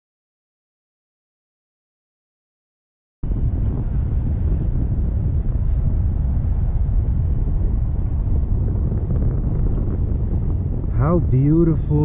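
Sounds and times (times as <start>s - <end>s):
wind buffeting microphone: 3.2s - 12.0s.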